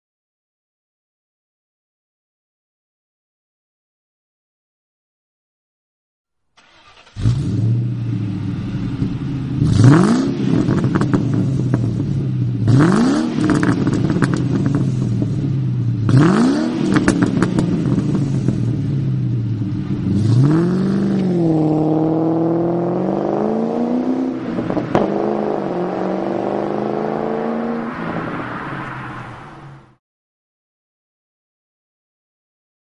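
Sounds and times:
car accelerating away: 6.6s - 30.0s
car engine idling and revving: 6.6s - 30.0s.

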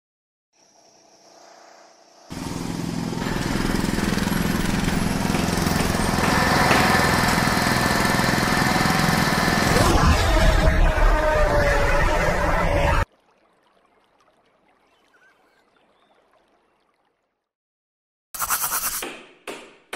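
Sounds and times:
engines: 0.6s - 13.1s
machinery: 2.3s - 13.0s.

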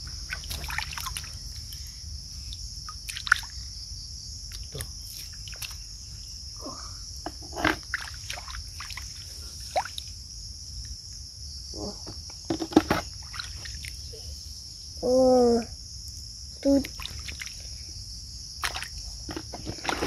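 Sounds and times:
water splashing and trickling: 0.0s - 3.8s, 4.4s - 10.3s, 12.5s - 14.4s, 16.6s - 17.9s, 18.5s - 20.0s
insect chorus: 0.0s - 20.0s.

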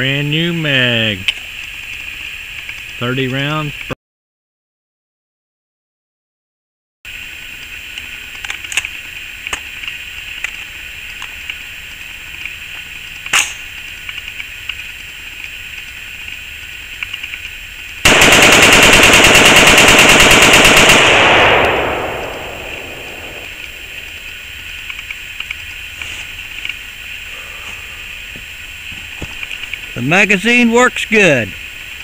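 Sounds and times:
rapid rifle shots: 18.0s - 24.2s.

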